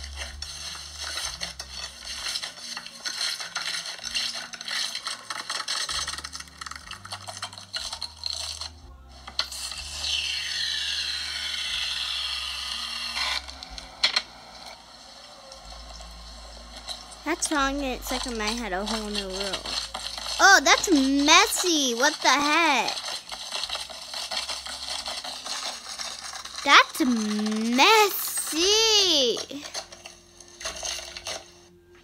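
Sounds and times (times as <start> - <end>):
slime crackling and scraping: 0.0 - 31.7.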